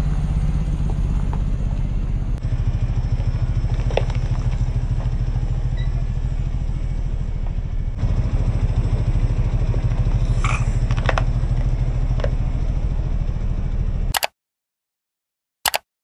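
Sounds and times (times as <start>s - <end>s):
car engine idling: 0.0s - 14.1s
objects cracking under a tyre: 3.1s - 5.2s.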